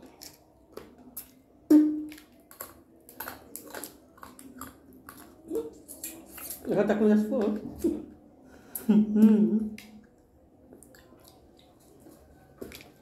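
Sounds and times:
chewing: 0:00.0 - 0:06.7, 0:09.7 - 0:13.0.

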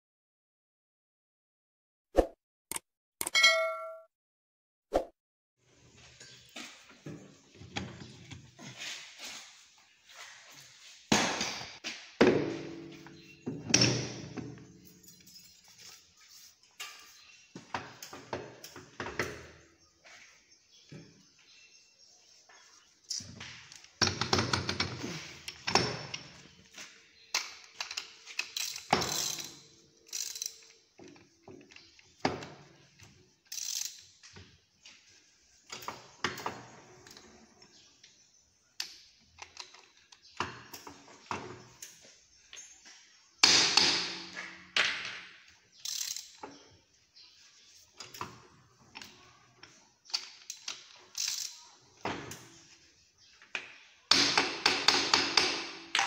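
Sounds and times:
ratcheting clicks: 0:27.4 - 0:30.8, 0:33.5 - 0:34.0, 0:45.8 - 0:46.4, 0:50.1 - 0:51.6.

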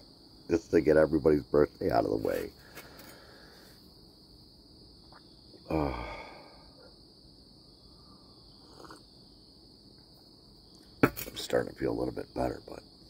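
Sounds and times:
crickets chirring: 0:00.0 - 0:13.0
man sighing: 0:05.7 - 0:06.8.

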